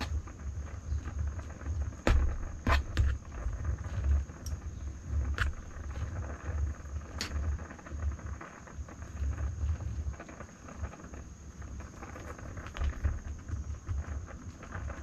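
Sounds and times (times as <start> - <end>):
gas stove burner rumble: 0.0 - 15.0.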